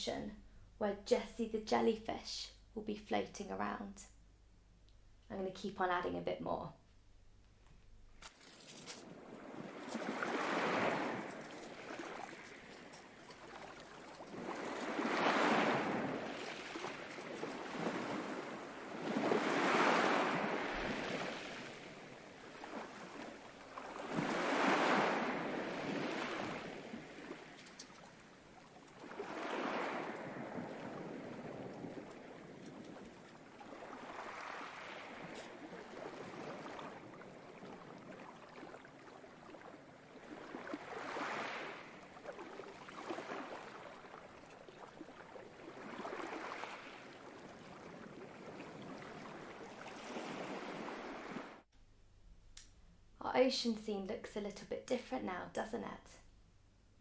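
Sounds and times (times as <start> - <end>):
ocean waves washing: 8.9 - 51.6.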